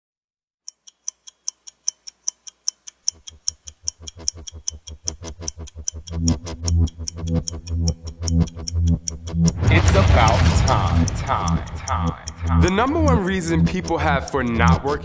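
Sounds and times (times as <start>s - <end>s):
stopwatch ticking: 0.6s - 15.0s
deep bass pulse: 6.0s - 14.8s.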